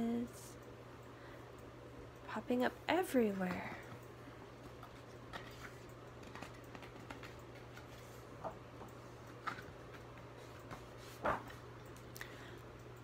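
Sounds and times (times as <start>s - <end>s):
low steady hum: 0.0s - 13.0s
book page rustling: 4.8s - 8.2s.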